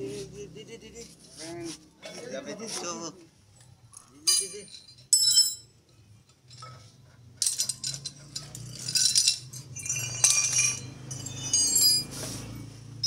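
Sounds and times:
metal tools clinking and rattling: 3.9s - 13.0s.

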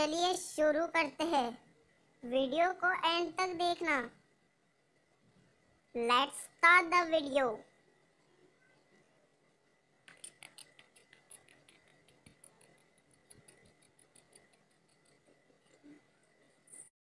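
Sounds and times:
faint high whine: 0.0s - 16.9s
marker scratching on whiteboard: 10.0s - 16.9s.

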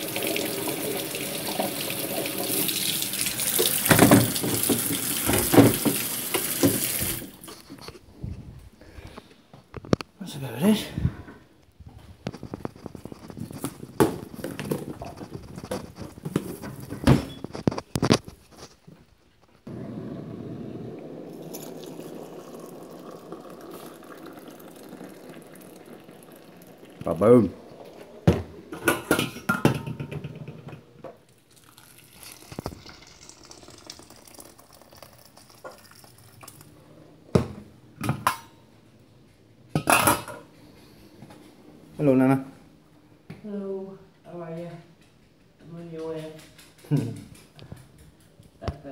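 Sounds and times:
stew bubbling in a pot: 19.6s - 28.2s, 31.3s - 36.8s
metal pot and lid clatter: 28.7s - 30.8s, 39.8s - 40.4s
kitchen handling clicks and knocks: 28.8s - 30.8s.

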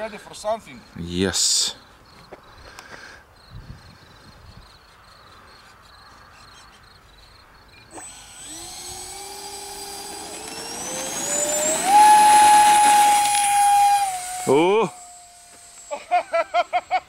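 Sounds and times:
electric ducted fans whining: 7.9s - 16.6s.

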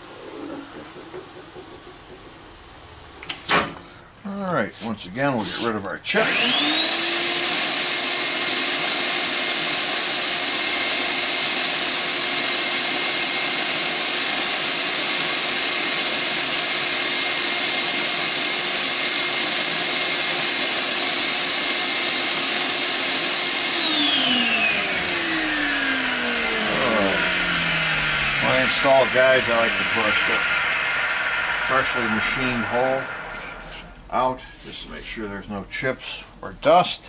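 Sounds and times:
shop vacuum motor whine: 6.1s - 34.3s.

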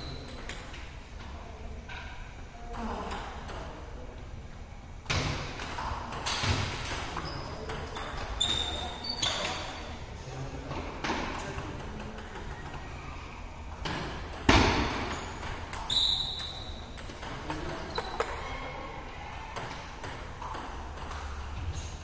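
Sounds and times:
short high squeak: 8.4s - 9.8s, 15.9s - 16.9s
ping-pong balls knocking: 13.8s - 18.6s, 19.6s - 21.6s.

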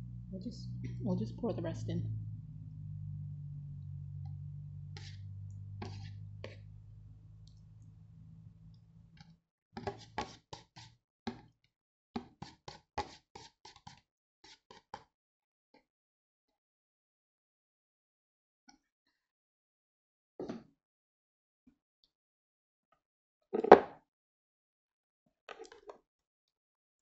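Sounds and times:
low steady hum: 0.0s - 9.2s.

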